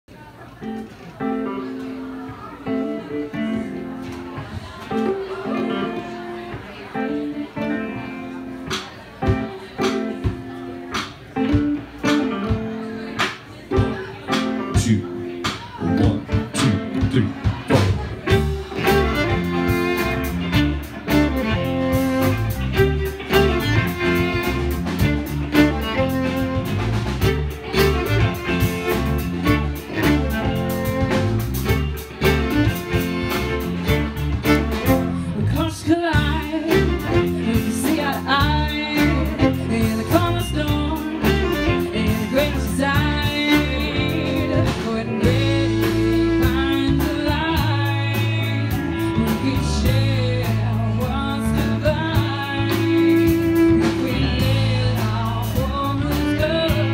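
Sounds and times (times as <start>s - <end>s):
electric guitars: 0.5s - 56.9s
bass guitar: 0.6s - 56.9s
drum kit beat: 8.6s - 56.9s
fiddle: 18.0s - 56.9s
woman singing: 34.8s - 56.9s.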